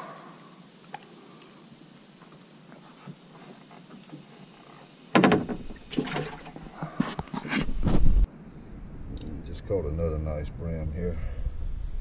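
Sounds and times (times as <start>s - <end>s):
knocks and thumps in a boat: 5.1s - 8.3s.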